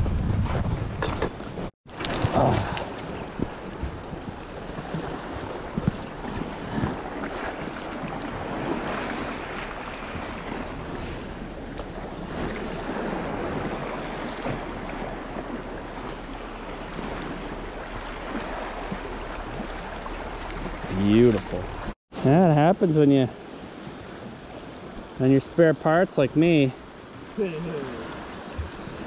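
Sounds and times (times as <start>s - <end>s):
wind rumbling on microphone: 0.0s - 22.0s, 28.1s - 29.0s
waves washing against rocks: 1.9s - 22.0s.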